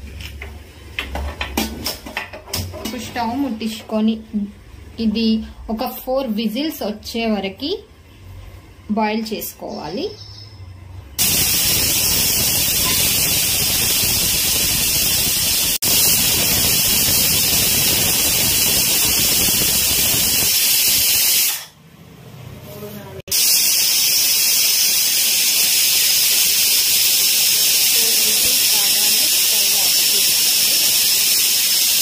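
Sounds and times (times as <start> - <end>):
pressure cooker steam hiss: 11.2 - 21.7, 23.3 - 32.0.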